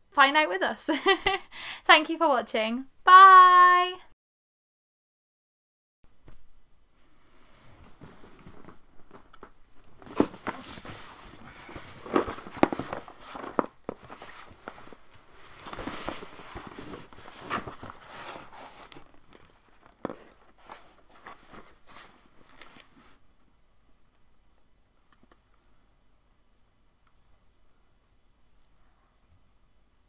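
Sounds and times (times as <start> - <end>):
cardboard boxes rustling and scraping: 7.7 - 23.2.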